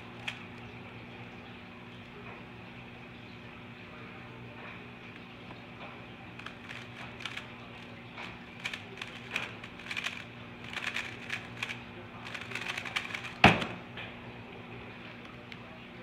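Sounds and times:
puzzle cube clicking turns: 0.2 - 0.4, 6.4 - 13.7
cube set down with slap: 12.5 - 13.8.

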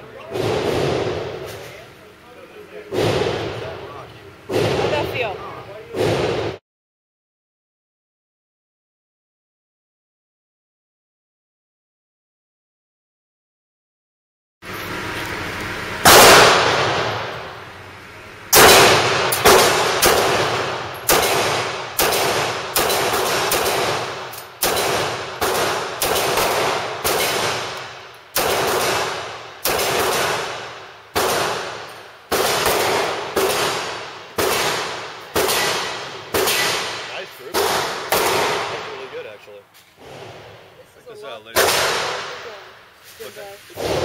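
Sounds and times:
pistol shots echoing indoors: 0.3 - 1.4, 16.0 - 17.5, 18.5 - 39.0, 41.6 - 42.6.

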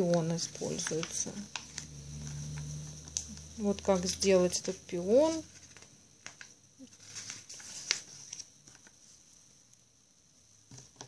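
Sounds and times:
book pages turning: 0.0 - 9.2.

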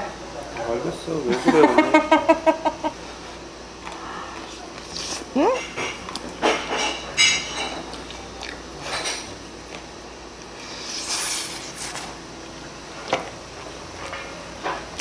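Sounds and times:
metal fork clinking on dish: 5.6 - 7.8.

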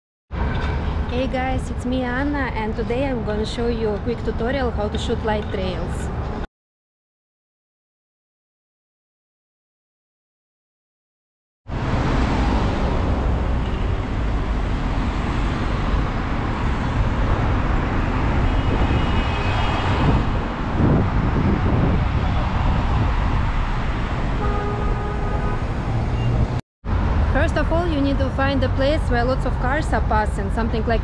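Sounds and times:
cars passing: 11.7 - 31.0
car horn tooting: 24.4 - 26.4.

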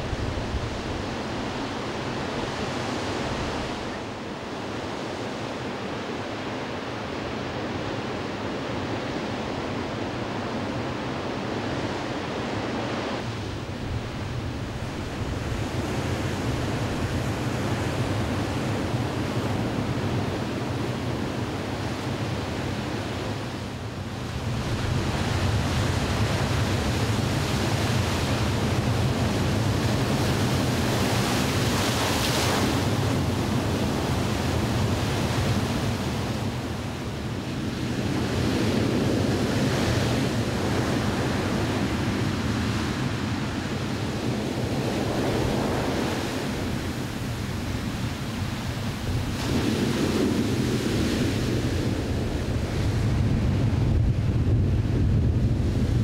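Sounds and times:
heavy surf breaking on rocks: 24.4 - 56.0.

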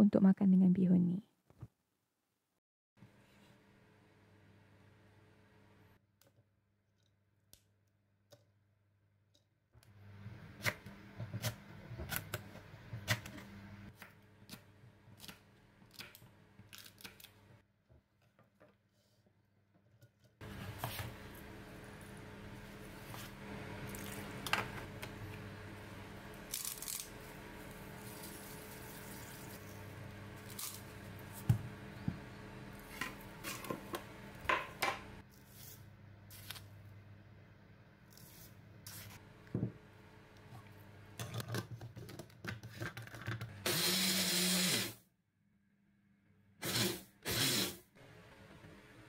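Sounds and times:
blender grinding: 43.6 - 45.0, 46.6 - 47.8.

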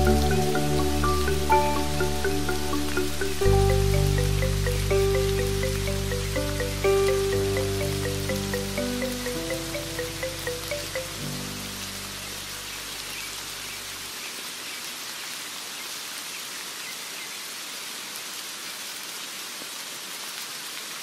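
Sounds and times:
low instrumental notes: 0.0 - 12.1
steady rain falling: 0.0 - 21.0.

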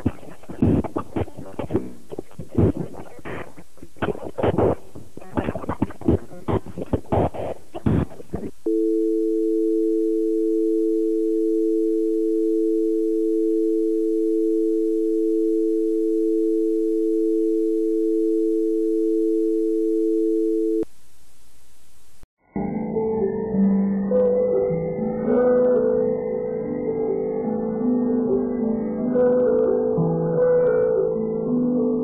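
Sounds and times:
crackling bursts: 0.0 - 8.7
steady hiss: 0.0 - 8.7, 20.8 - 22.2
telephone dial tone: 8.7 - 20.8.

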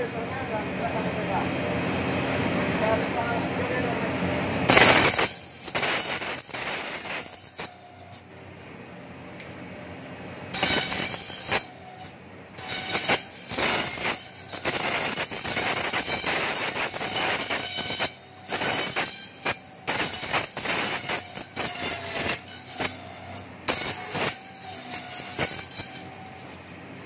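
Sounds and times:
machine rasping and rattling bamboo: 4.7 - 8.2, 10.5 - 26.8.

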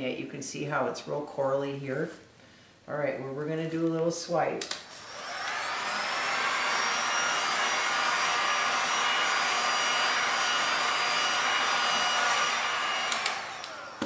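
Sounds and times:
heat gun blowing air: 4.9 - 14.0.

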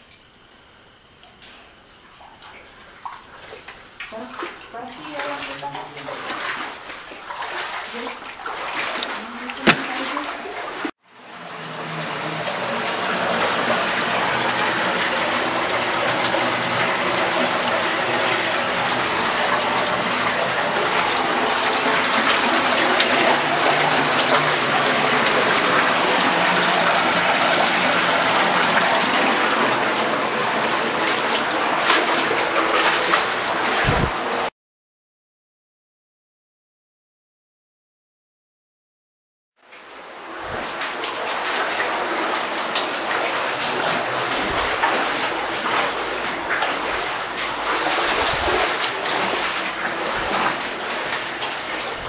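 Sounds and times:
stream water rushing: 7.5 - 10.6, 11.6 - 34.2.

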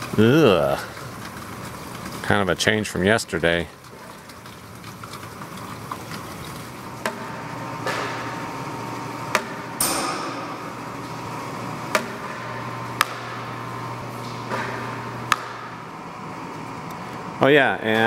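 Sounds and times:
water drops tapping buckets: 0.0 - 9.9
steady low hum: 4.8 - 18.0.

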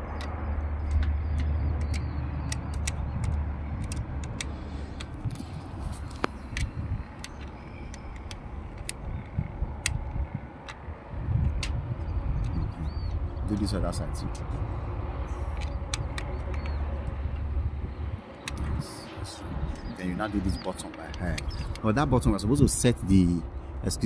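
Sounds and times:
allen key metal clicks: 0.0 - 13.0, 15.3 - 18.9, 19.6 - 22.2
low rumble: 0.0 - 20.0.

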